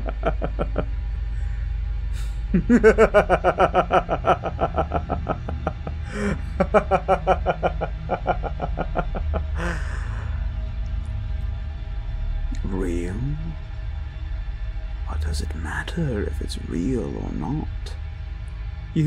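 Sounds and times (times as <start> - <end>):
man laughing villainously: 0.0 - 0.9, 2.4 - 10.4
low droning music: 0.0 - 19.0.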